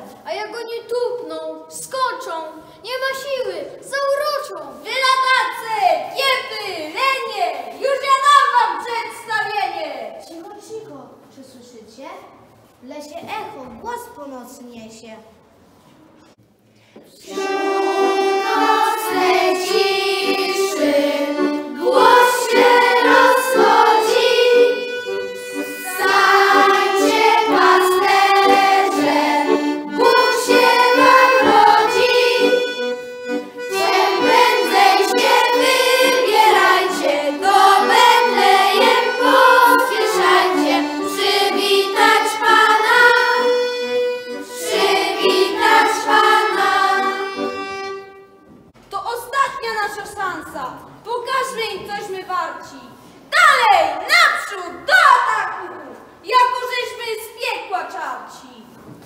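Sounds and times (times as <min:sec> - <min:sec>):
children singing: 0:17.2 - 0:48.1
accordions playing folk tune: 0:17.2 - 0:48.6.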